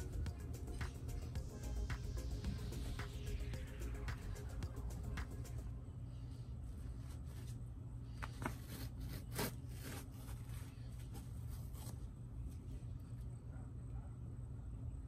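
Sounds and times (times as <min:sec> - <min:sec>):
low steady hum: 0:00.0 - 0:15.0
fabric rustling and scraping: 0:06.6 - 0:12.9.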